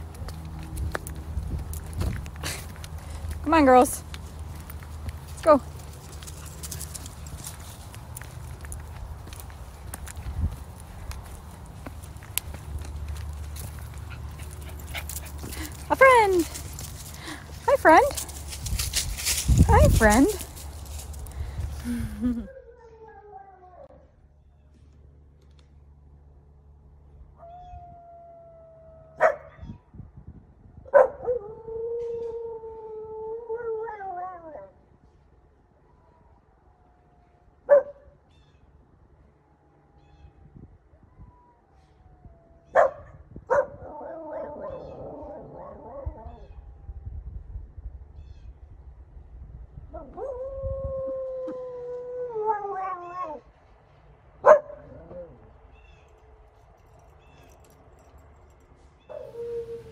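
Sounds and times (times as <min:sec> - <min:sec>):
dog howling: 0:59.1 - 0:59.9.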